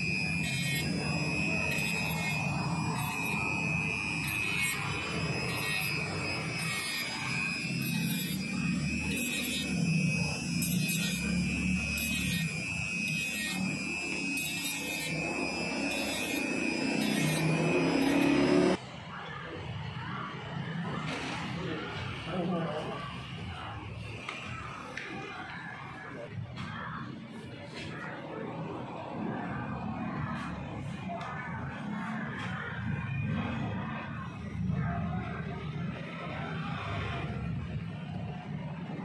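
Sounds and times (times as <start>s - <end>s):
rotary tool grinding metal: 0.0s - 18.8s.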